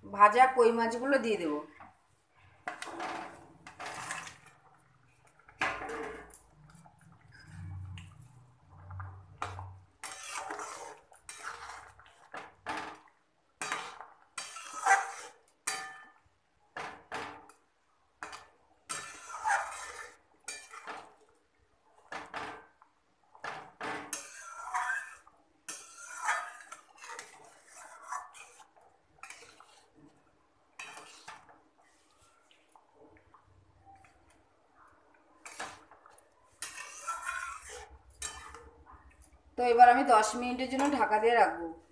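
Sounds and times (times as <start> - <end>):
metal spatula scraping metal pot: 2.3 - 17.6, 18.2 - 21.3, 23.5 - 32.4, 35.3 - 39.0
spatula clanking on pot: 12.3 - 17.6, 36.6 - 38.8.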